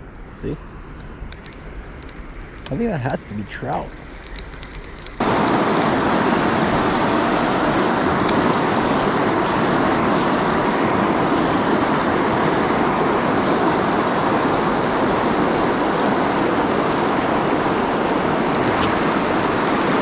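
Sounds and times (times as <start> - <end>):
river water rushing: 5.2 - 20.0.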